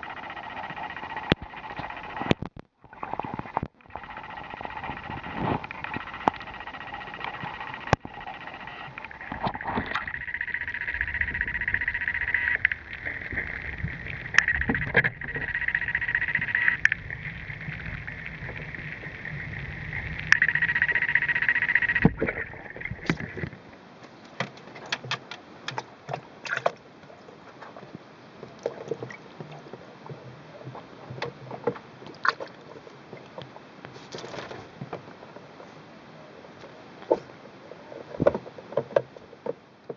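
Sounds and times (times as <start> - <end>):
steady noise: 0.0 - 24.0
water sloshing and splashing in bucket: 24.4 - 27.8, 28.5 - 30.8, 31.5 - 34.8.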